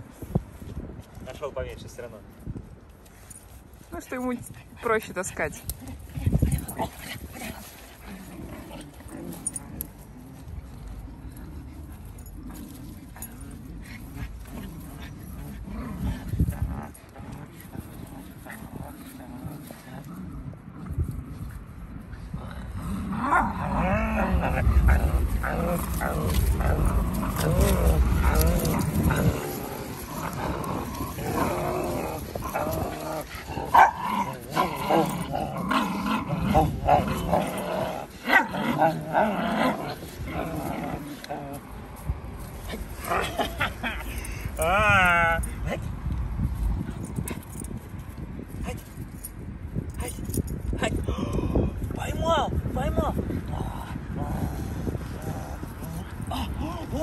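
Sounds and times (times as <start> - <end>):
puppy growling: 22.3 - 41.7.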